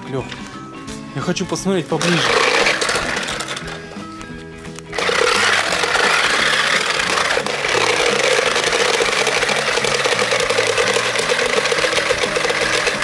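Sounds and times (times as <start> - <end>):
small electric motors whirring: 2.0 - 3.8, 4.9 - 13.0
wheels rattling on concrete: 2.0 - 4.0.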